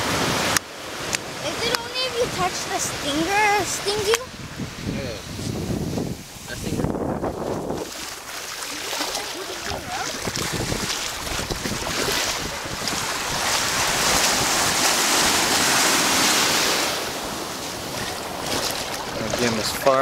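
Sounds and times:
small waves washing on sand: 0.0 - 20.0
wind buffeting microphone: 1.4 - 20.0.

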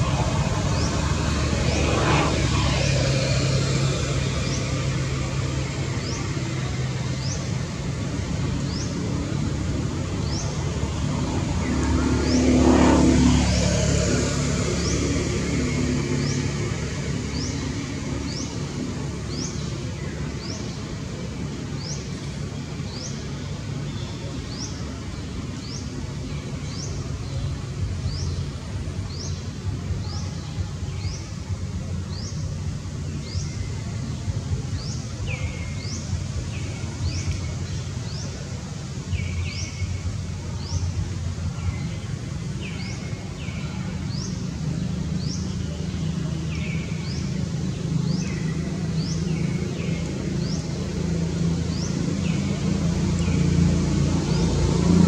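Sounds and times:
steady low rumble: 0.0 - 23.9.

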